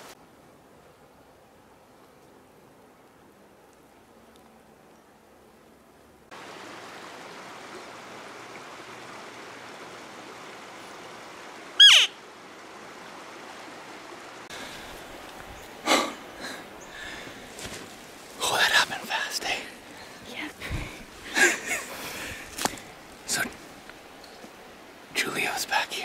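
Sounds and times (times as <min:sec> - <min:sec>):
background hiss: 0:00.0 - 0:26.0
elk call: 0:11.8 - 0:12.2.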